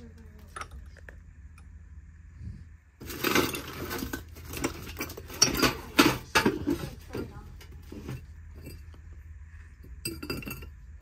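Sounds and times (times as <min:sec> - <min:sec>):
dishes and debris clattering: 0:03.0 - 0:09.2, 0:09.9 - 0:11.0.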